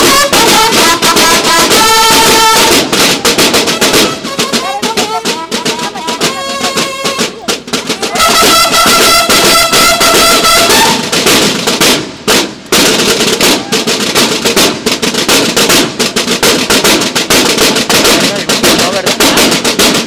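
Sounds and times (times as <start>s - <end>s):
held brass note: 0.0s - 11.3s
snare drums playing: 0.0s - 20.0s.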